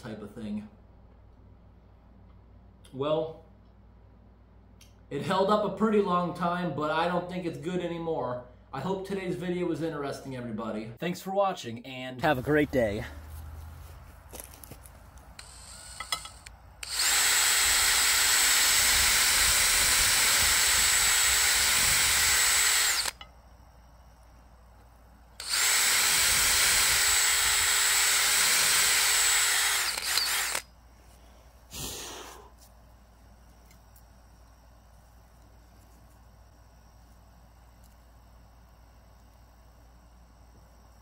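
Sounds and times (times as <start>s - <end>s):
power drill running: 15.4s - 23.2s, 25.4s - 30.7s.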